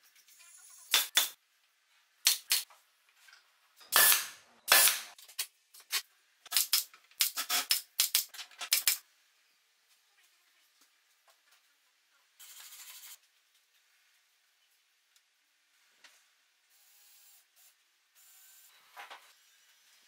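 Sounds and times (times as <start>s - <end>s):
nail gun firing into wood: 4.0s - 5.2s.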